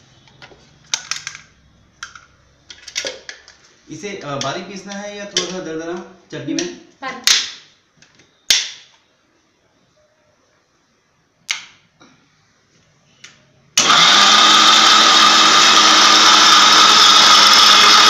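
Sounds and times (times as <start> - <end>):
mixer-grinder motor running: 13.8 - 18.0.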